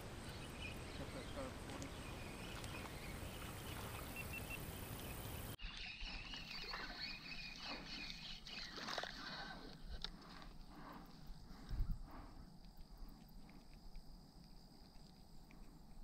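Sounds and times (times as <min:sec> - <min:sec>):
wind noise on microphone: 0:11.5 - 0:12.4.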